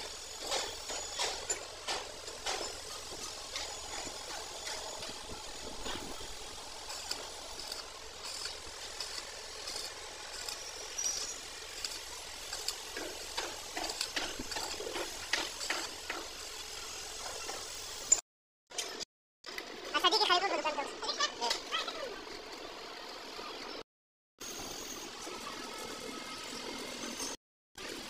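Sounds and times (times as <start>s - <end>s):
welding arc crackling: 0.0s - 18.2s.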